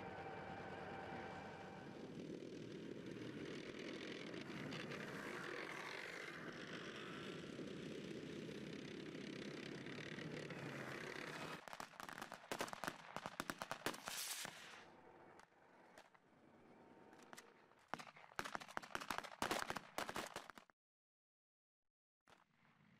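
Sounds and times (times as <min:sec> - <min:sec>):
machine-gun fire in bursts: 0:11.5 - 0:14.3, 0:17.9 - 0:20.6.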